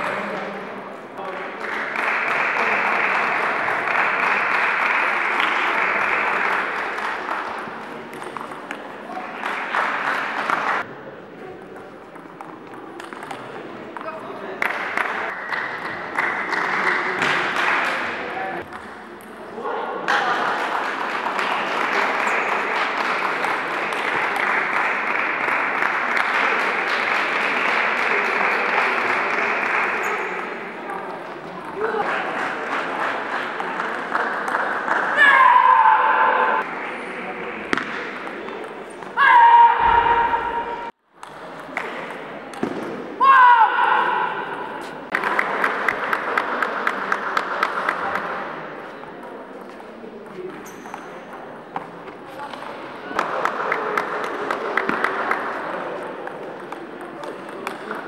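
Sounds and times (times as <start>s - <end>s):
crowd applauding: 1.2s - 8.0s, 9.1s - 10.9s, 14.6s - 18.1s, 20.1s - 30.6s, 45.1s - 48.3s.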